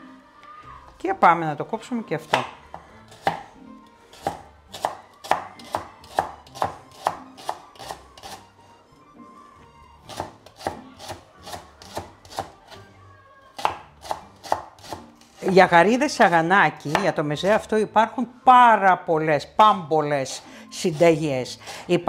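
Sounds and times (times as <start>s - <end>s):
knife chopping on cutting board: 2.2s - 3.5s, 4.1s - 8.4s, 10.1s - 12.6s, 13.6s - 17.6s.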